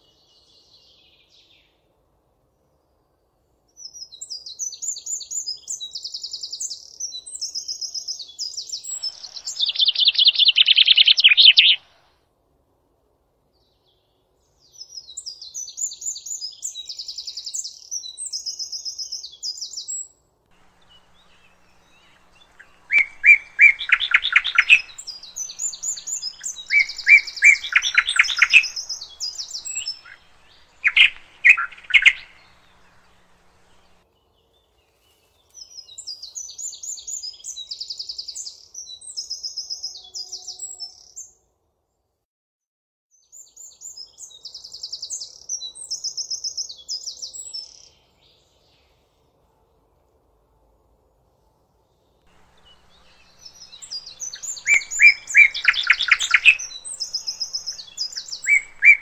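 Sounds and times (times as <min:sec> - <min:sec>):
bird high trilled song: 0:03.8 - 0:12.0, 0:20.6 - 0:34.0, 0:52.3 - 0:59.0
bird lower louder song: 0:03.8 - 0:12.1, 0:14.6 - 0:41.4, 0:52.0 - 0:59.0.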